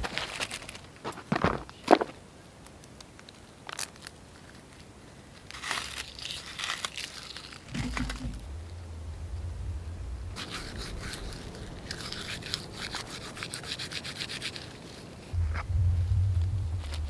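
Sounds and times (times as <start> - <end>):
dry leaves crinkling: 0.0 - 2.2, 2.8 - 15.4
twigs snapping: 0.0 - 8.8
low rumble: 7.7 - 13.2, 15.3 - 17.0.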